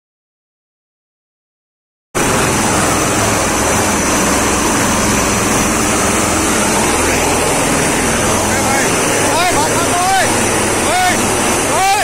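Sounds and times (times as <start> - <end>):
aircraft engine droning: 2.2 - 12.0.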